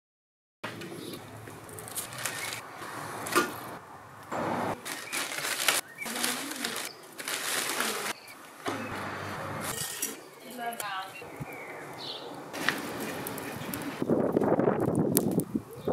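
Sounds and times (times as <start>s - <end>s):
charcoal rustling and scraping: 1.4s - 8.4s, 9.0s - 10.8s, 12.5s - 15.4s.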